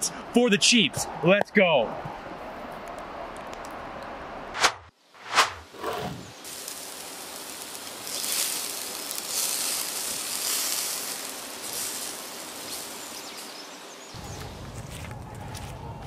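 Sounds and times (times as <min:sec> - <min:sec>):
gas barbecue grill sizzling: 0:06.4 - 0:14.0.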